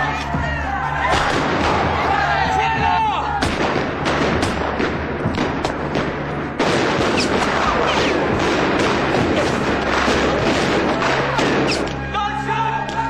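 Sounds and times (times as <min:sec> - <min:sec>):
rifle and pistol gunfire: 0:03.4 - 0:12.0.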